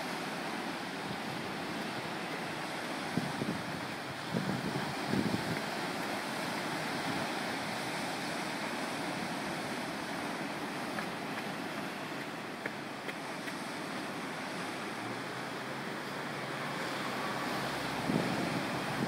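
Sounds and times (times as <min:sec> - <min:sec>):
ocean surf breaking: 0:00.0 - 0:19.0
wind noise on microphone: 0:02.7 - 0:08.2, 0:16.6 - 0:19.0.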